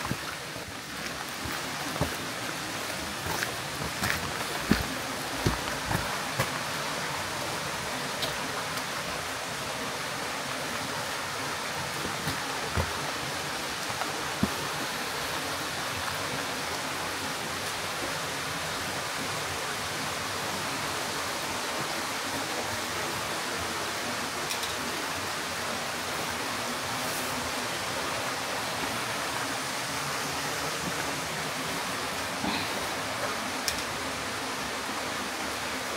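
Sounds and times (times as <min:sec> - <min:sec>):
water splashes: 0:00.0 - 0:18.2
stream of running water: 0:00.0 - 0:35.9.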